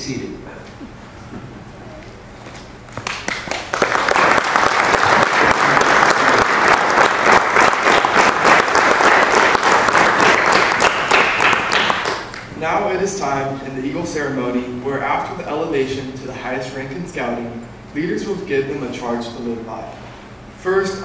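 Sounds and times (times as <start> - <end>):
audience applauding: 3.0 - 12.5.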